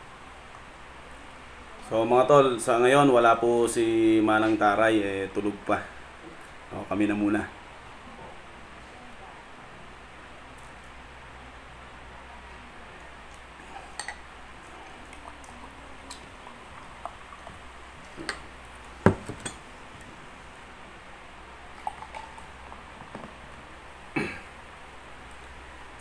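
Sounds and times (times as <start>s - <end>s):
glass bottle being handled: 13.8s - 14.2s, 17.4s - 19.6s.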